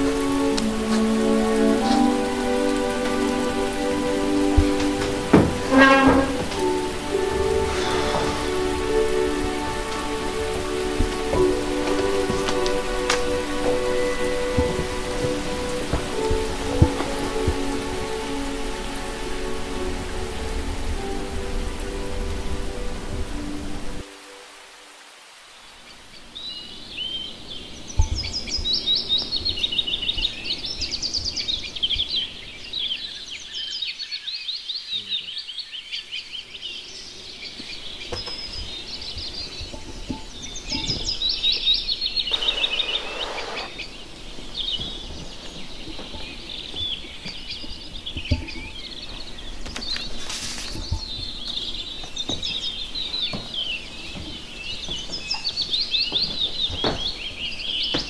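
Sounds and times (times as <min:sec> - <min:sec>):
songbirds chirping and twittering: 0:00.0 - 0:58.0
short hiss: 0:06.6 - 0:10.2, 0:42.3 - 0:43.9.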